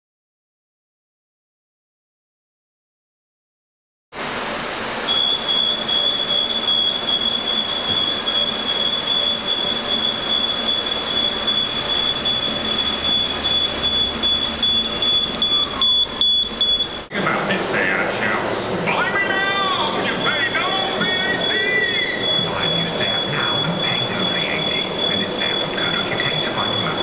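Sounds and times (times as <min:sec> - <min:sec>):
warehouse machinery noise: 0:04.2 - 0:27.0
high-pitched electronic tone: 0:05.1 - 0:17.1, 0:20.0 - 0:27.0.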